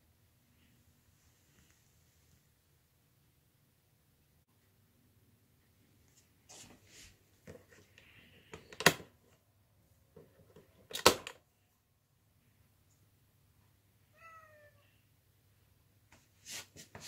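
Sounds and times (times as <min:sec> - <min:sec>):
gloved hand rubbing and handling: 0:16.1 - 0:17.0.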